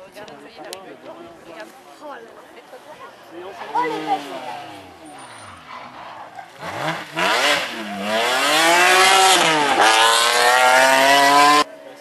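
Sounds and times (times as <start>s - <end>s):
rally car engine revving: 3.5s - 11.7s.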